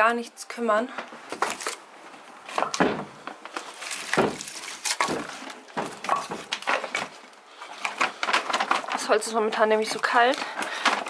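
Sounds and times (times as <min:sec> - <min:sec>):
firewood logs knocking together: 0:02.5 - 0:07.2, 0:07.8 - 0:09.1, 0:10.4 - 0:11.0.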